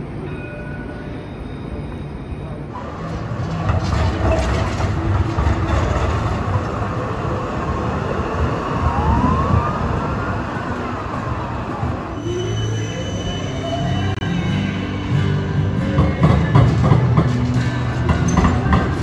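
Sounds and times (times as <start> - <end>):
tram rumbling on rails: 0.0 - 19.0.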